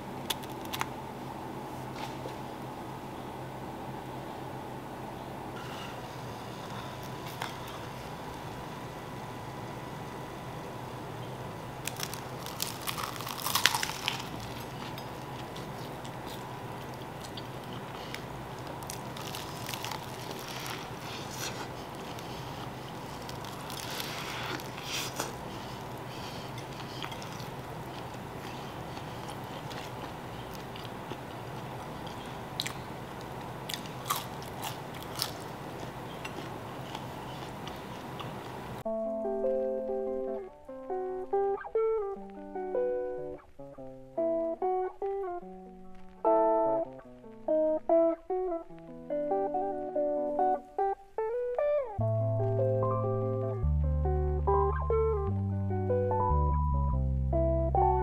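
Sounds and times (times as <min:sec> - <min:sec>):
faint hum: 0:00.0 - 0:58.0
crunchy bites and chewing: 0:11.8 - 0:38.7.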